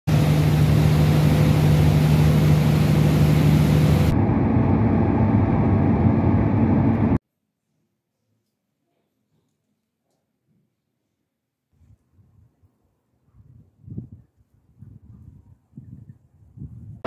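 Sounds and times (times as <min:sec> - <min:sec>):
car driving drone inside cabin: 0:00.1 - 0:07.2
ferry engine humming: 0:00.1 - 0:07.2.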